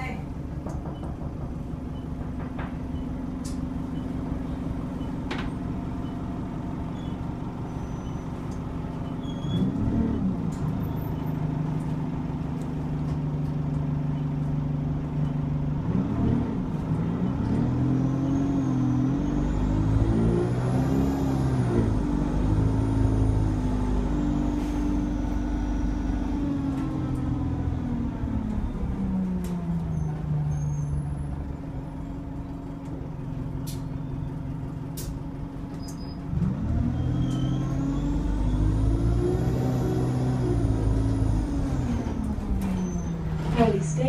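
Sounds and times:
bus engine droning: 0.0 - 44.0
clicks and rattles in cabin: 0.5 - 3.6.

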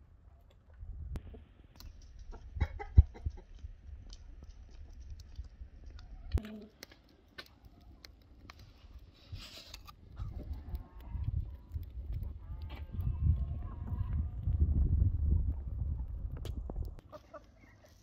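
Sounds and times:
wood fire crackling: 1.5 - 18.0
chicken clucking: 2.2 - 3.5, 17.0 - 18.0.

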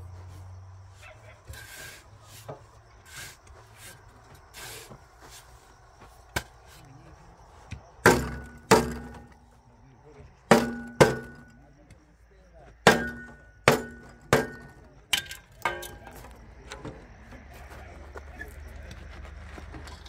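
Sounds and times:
faint scrapes: 0.2 - 6.9
sharp ringing strikes: 10.5 - 11.6, 12.8 - 14.8.

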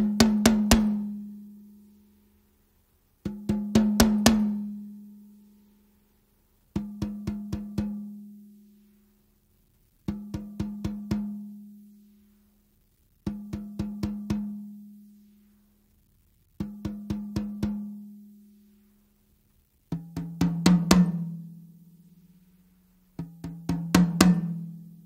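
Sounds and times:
drum struck with a drumstick: 0.0 - 1.4, 3.2 - 5.0, 6.7 - 8.2, 10.0 - 11.5, 13.3 - 14.7, 16.6 - 18.1, 19.9 - 21.6, 23.1 - 25.0.

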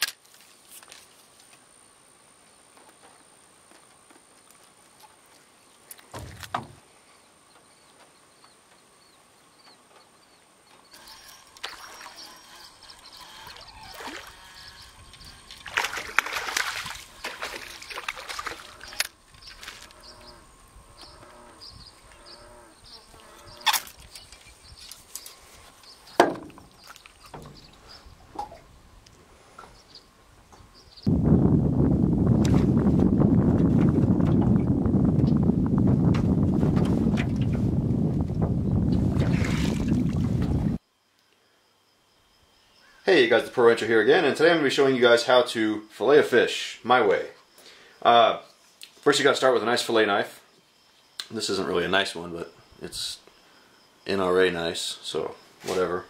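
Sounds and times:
light water noise: 11.0 - 20.1, 25.9 - 28.7, 39.1 - 40.8
fish thrashing and splashing: 11.6 - 12.2, 13.0 - 14.7, 15.3 - 19.8, 39.2 - 40.4
sharp knocks: 26.2 - 26.7.

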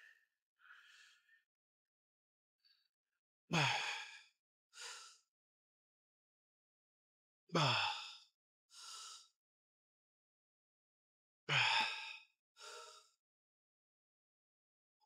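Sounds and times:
man breathing hard: 0.6 - 1.4, 3.6 - 4.2, 4.8 - 5.2, 11.5 - 13.1.

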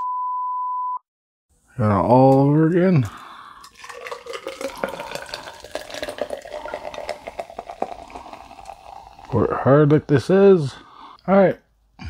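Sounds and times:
cola pouring into a glass: 3.0 - 9.6.

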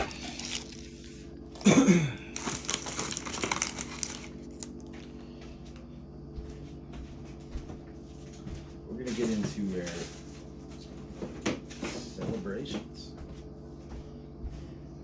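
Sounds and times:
plastic packaging crinkling: 0.0 - 1.7, 2.3 - 5.0.

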